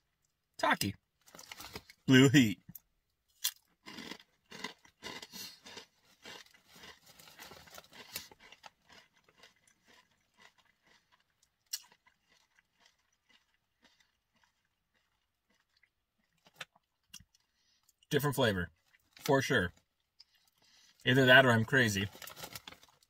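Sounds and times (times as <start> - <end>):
person crunching tortilla chip: 3.4 - 17.4.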